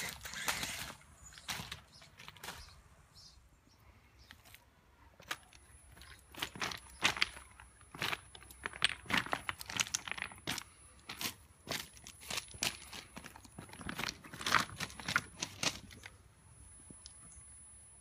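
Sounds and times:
stones crunching and clicking: 0:00.0 - 0:02.8, 0:05.2 - 0:16.2.

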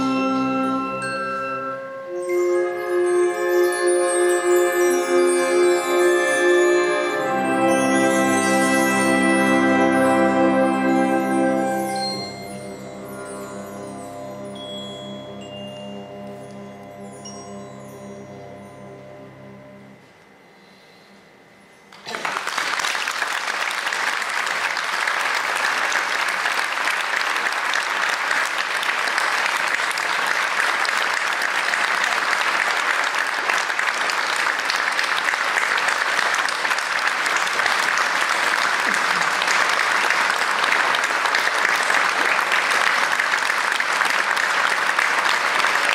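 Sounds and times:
audience applause: 0:22.0 - 0:45.9.

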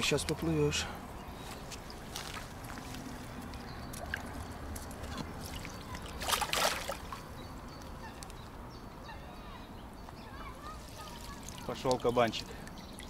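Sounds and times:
fish splashing in water: 0:01.9 - 0:07.3, 0:10.6 - 0:13.0.

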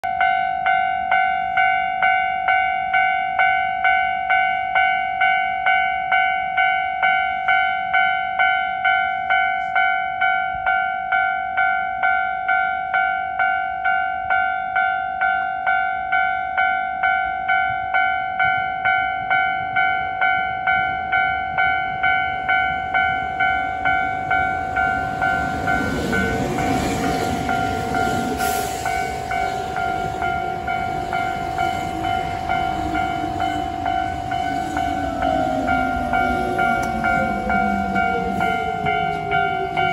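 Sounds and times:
level crossing bell ringing: 0:00.0 - 0:39.9
train rumbling: 0:17.4 - 0:39.9.

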